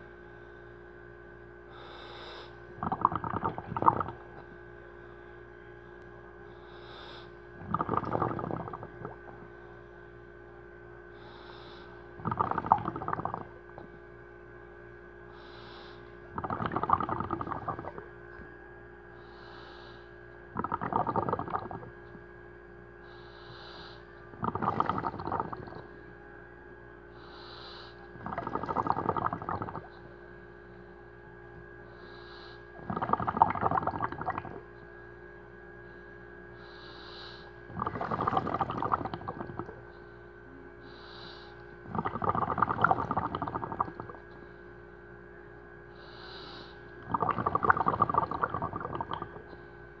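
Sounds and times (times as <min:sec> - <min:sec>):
steady hum: 0:00.0 - 0:50.0
faint hiss of inhalation: 0:01.7 - 0:04.0, 0:06.6 - 0:09.1, 0:11.1 - 0:13.5, 0:15.3 - 0:18.0, 0:19.2 - 0:20.2, 0:23.0 - 0:25.6, 0:27.1 - 0:29.9, 0:31.9 - 0:33.3, 0:35.9 - 0:42.0, 0:45.9 - 0:49.2
bubbling diver exhalations: 0:02.7 - 0:04.4, 0:07.6 - 0:09.5, 0:12.2 - 0:13.9, 0:16.3 - 0:18.2, 0:20.5 - 0:22.0, 0:24.3 - 0:25.9, 0:28.2 - 0:30.0, 0:32.8 - 0:34.7, 0:37.7 - 0:39.8, 0:41.2 - 0:44.4, 0:47.0 - 0:49.6.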